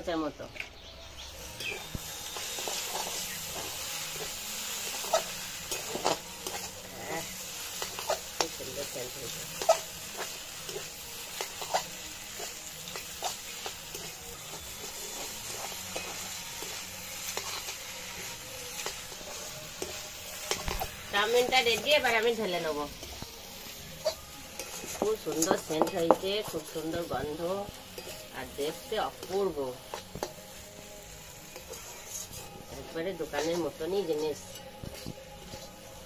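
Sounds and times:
noodles sizzling in a wok: 0.0s - 36.0s
metal spatula scraping a pan: 1.5s - 30.6s, 31.2s - 36.0s.

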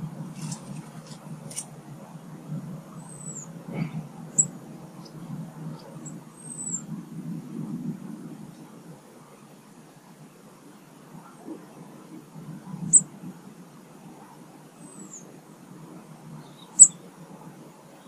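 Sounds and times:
road traffic rumble: 0.0s - 18.0s
small birds chirping: 3.0s - 6.9s, 14.8s - 15.3s, 16.3s - 17.1s.

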